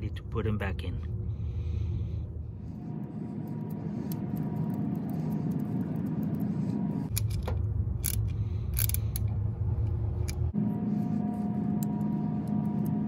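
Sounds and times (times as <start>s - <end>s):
steady low rumble: 0.0s - 13.0s
hand ratchet clicking: 7.1s - 9.3s
metallic clicks of bolts: 7.1s - 9.4s.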